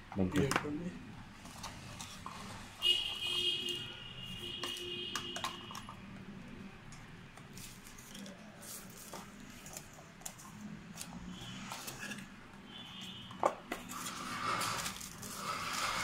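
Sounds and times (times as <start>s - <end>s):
cardboard and paper rustling: 7.5s - 12.3s, 13.7s - 16.0s.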